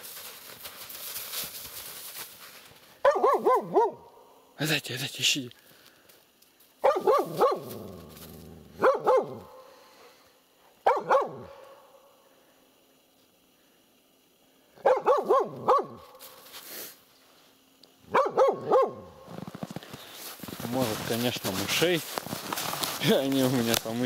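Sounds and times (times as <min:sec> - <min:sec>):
dog barking: 0:03.0 - 0:04.1, 0:06.8 - 0:07.9, 0:08.7 - 0:09.6, 0:10.8 - 0:11.7, 0:14.8 - 0:16.2, 0:18.1 - 0:19.2.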